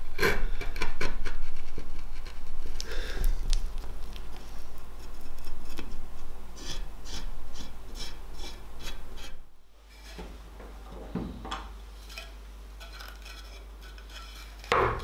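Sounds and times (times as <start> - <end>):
hand tool scraping: 6.6 - 10.4, 12.0 - 15.0.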